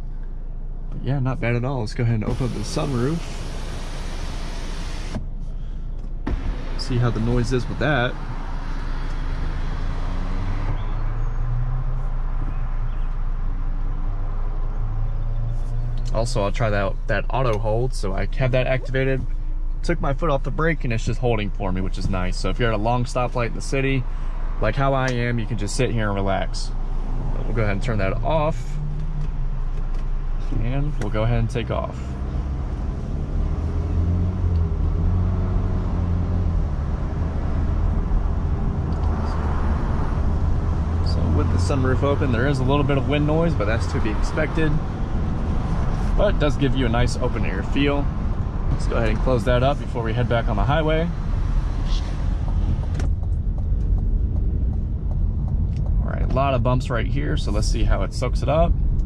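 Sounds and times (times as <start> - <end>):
car engine idling: 0.0 - 59.0
outside traffic noise: 0.0 - 59.0
road and wind noise: 0.0 - 59.0
sunroof motor whine: 2.4 - 5.2.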